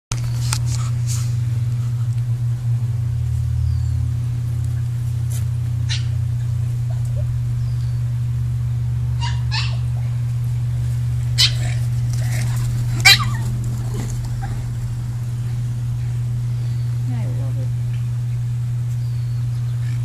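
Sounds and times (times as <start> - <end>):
steady low hum: 0.1 - 20.0
dogs yelping: 5.8 - 8.0, 9.1 - 10.3, 11.2 - 15.1.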